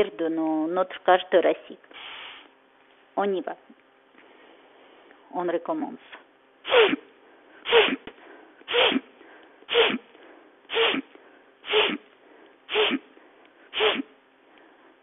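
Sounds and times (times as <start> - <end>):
woman sniffing forceful in-breaths: 2.0 - 2.5, 6.7 - 7.0, 7.6 - 8.1, 8.7 - 9.1, 9.7 - 10.0, 10.7 - 12.0, 12.7 - 13.1, 13.7 - 14.1.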